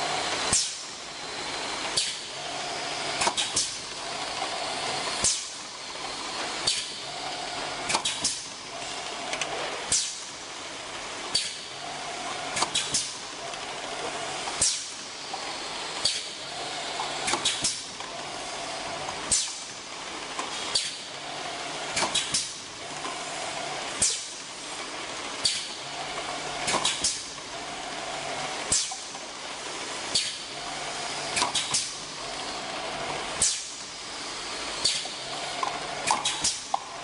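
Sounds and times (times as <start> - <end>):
steady mechanical hum: 0.0 - 37.0
pneumatic air hisses: 5.2 - 5.5, 34.3 - 36.7.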